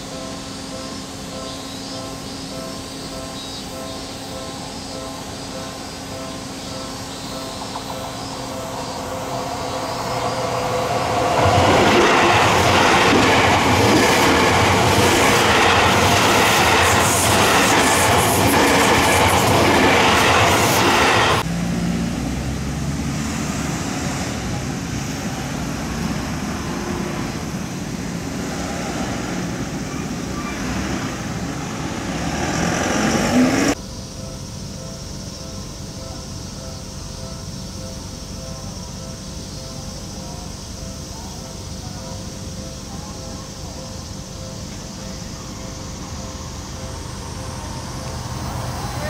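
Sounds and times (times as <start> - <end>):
train wheels rushing on rails: 0.0 - 49.0
car road noise: 6.5 - 33.9, 44.0 - 49.0.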